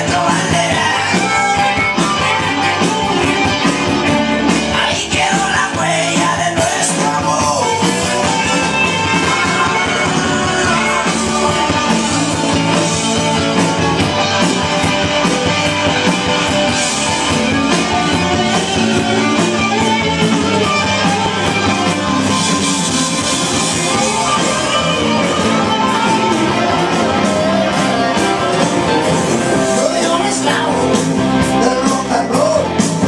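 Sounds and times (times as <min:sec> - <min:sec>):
loud dance music: 0:00.0 - 0:14.0.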